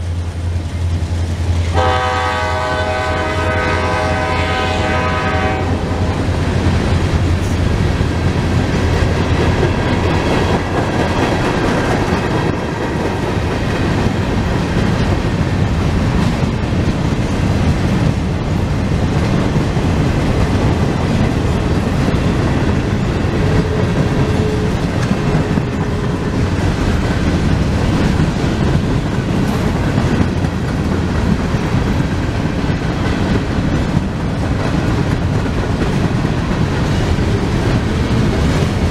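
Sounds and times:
train wheels rumbling on rails: 0.0 - 38.9
train horn blast: 1.7 - 6.3, 23.4 - 26.4
clacking over rail joints: 6.2 - 38.9.

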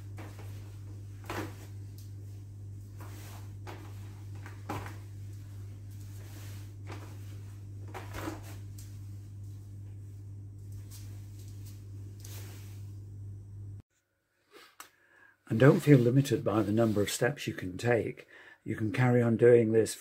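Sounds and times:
steady low hum: 0.0 - 13.8.

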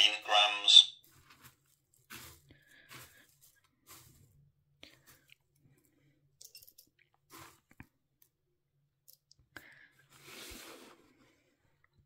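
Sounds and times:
dry rustling of mealworms: 1.0 - 4.4.

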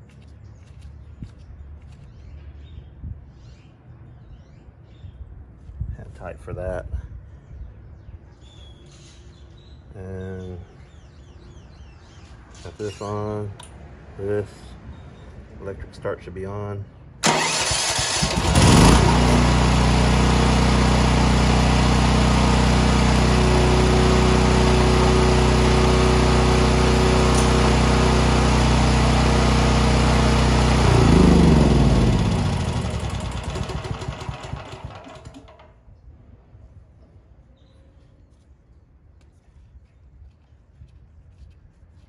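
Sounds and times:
electric starter cranking: 17.2 - 35.7
generator engine running: 17.2 - 35.7.

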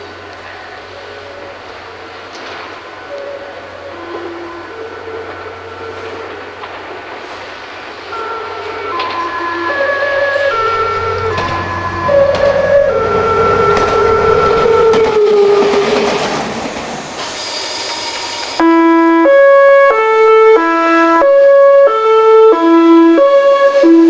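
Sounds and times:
train wheels rumbling: 0.0 - 18.6
musical train horn melody: 0.6 - 15.9, 17.6 - 24.0
train horn sliding note: 3.1 - 6.6, 8.1 - 15.8.

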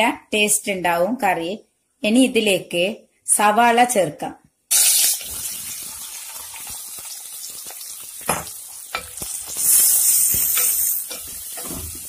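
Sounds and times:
onions sizzling in hot oil: 4.7 - 12.0.

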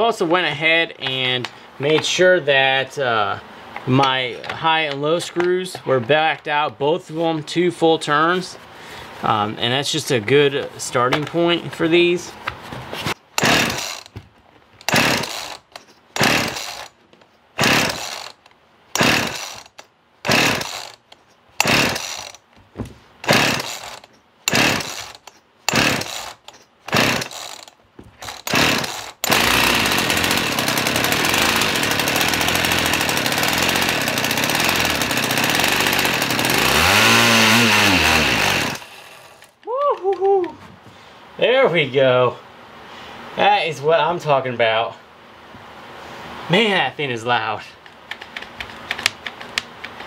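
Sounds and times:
chainsaw starter rope pulls: 13.0 - 14.2, 14.8 - 17.0, 17.6 - 22.5, 23.2 - 39.6
chainsaw engine running: 13.4 - 14.1, 14.8 - 17.0, 17.6 - 18.4, 19.0 - 21.0, 21.6 - 22.4, 23.2 - 39.5.

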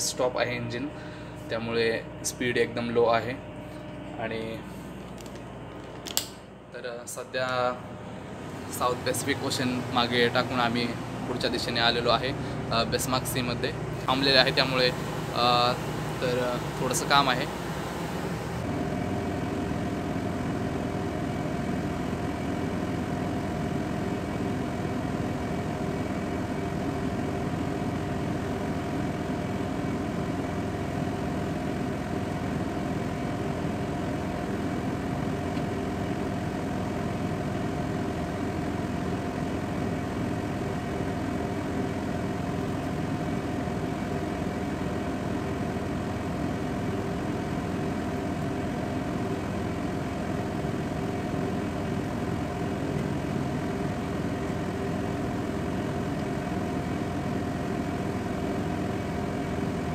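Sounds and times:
ship machinery humming: 6.5 - 18.8.

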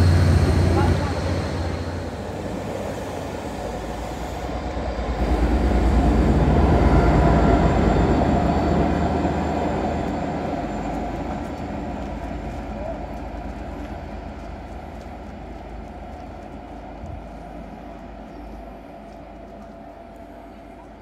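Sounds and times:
diesel locomotive engine: 0.0 - 21.0
train coaches rolling past: 0.0 - 21.0.

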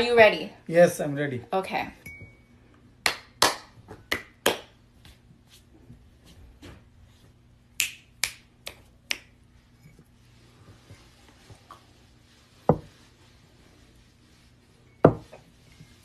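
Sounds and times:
finger snapping: 7.8 - 9.3.

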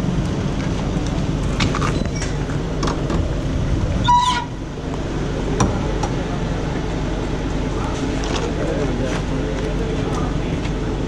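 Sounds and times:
van engine rumbling: 0.0 - 11.0
high squeal: 4.0 - 4.7.

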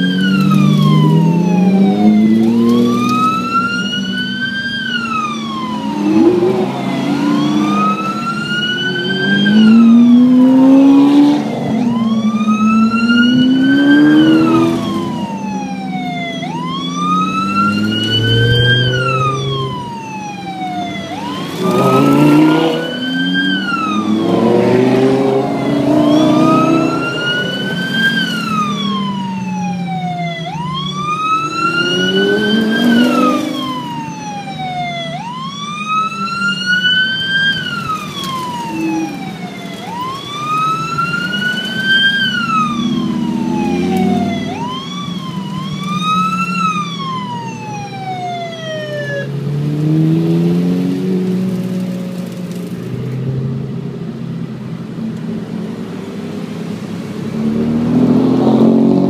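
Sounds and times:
sports car engines revving: 0.0 - 34.1, 48.7 - 59.0
police siren wailing: 0.0 - 52.8.

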